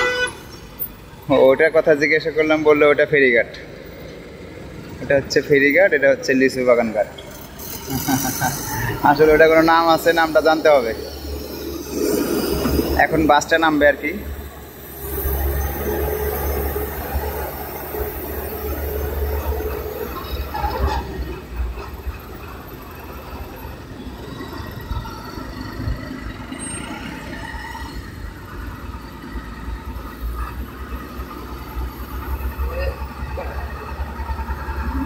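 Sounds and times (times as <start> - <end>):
bus engine rumble: 0.0 - 35.0.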